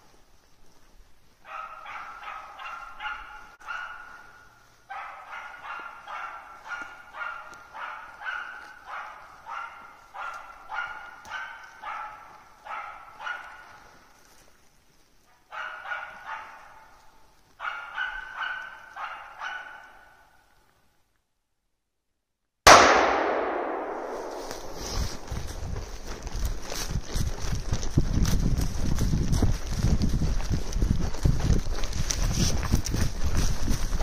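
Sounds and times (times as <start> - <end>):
dog barking sharply: 1.5 - 4.3, 4.9 - 13.7, 15.5 - 16.9, 17.6 - 20.2.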